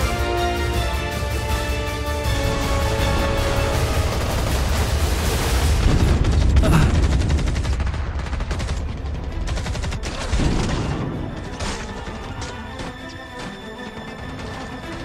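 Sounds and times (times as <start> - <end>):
rifle and machine-gun fire: 2.3 - 11.7.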